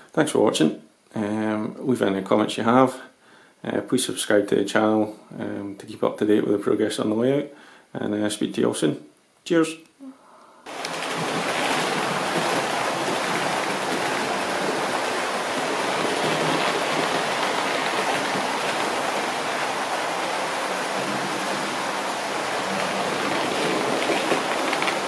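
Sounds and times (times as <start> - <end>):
model trains whirring on rails: 10.7 - 25.0.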